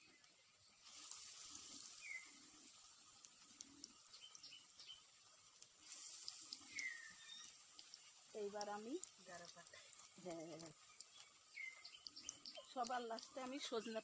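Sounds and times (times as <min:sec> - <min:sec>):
fritters frying in oil: 0:00.0 - 0:14.0
bird chirping: 0:01.9 - 0:02.4, 0:03.8 - 0:05.1, 0:06.5 - 0:08.1, 0:10.3 - 0:14.0.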